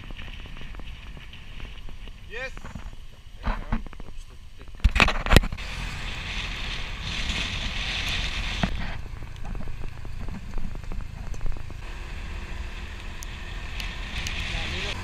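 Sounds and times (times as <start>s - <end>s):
wind noise: 0.0s - 15.0s
scooter engine running: 5.6s - 15.0s.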